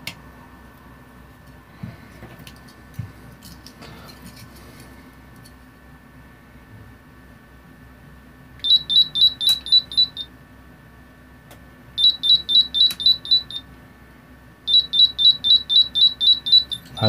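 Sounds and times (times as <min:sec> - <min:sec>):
quick high buzzer beeps: 0:08.7 - 0:10.3, 0:12.0 - 0:13.6, 0:14.7 - 0:17.0.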